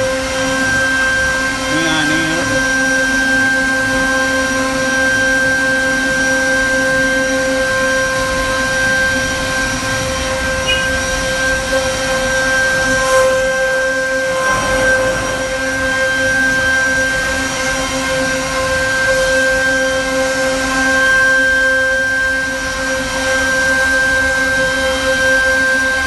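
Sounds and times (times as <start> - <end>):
router spindle high-pitched whine: 0.0 - 26.0.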